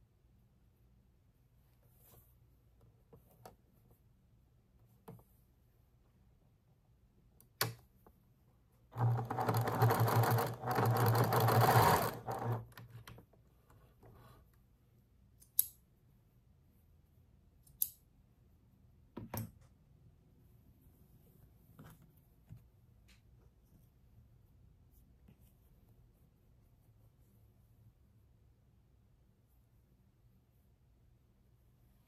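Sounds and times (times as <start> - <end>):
sewing machine stitching: 8.9 - 13.0.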